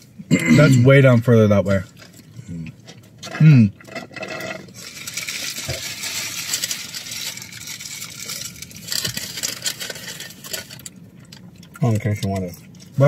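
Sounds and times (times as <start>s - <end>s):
packaging crinkling and rustling: 4.4s - 11.5s.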